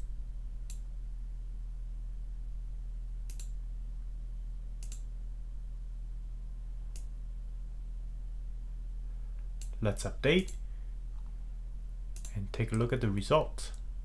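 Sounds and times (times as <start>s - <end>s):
low electrical hum: 0.0s - 14.0s
computer mouse clicks: 3.3s - 3.6s, 4.8s - 5.1s, 6.9s - 7.1s, 12.1s - 12.8s.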